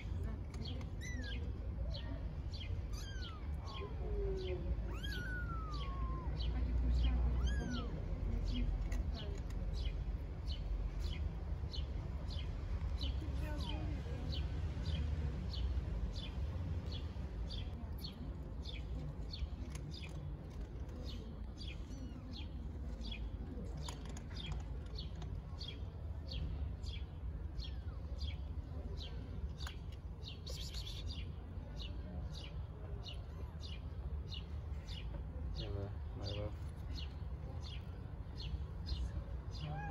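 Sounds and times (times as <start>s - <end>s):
small bird chirping: 16.2s - 35.1s.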